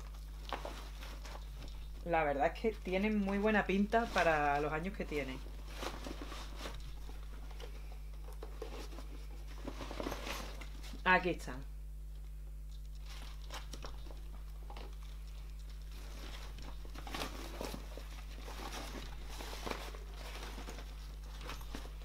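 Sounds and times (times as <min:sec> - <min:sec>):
nylon bag rustling: 0:00.0 - 0:07.8, 0:08.6 - 0:11.1, 0:15.9 - 0:22.0
steady low hum: 0:00.0 - 0:22.0.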